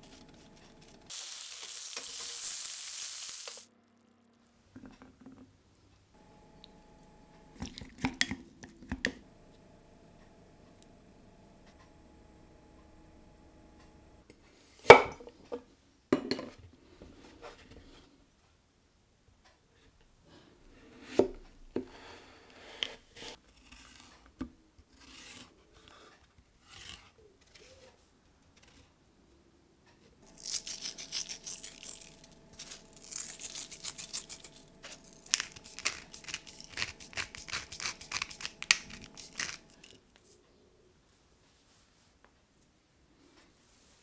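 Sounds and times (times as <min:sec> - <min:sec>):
rapid crisp clicks and scraping: 0:29.9 - 0:40.3.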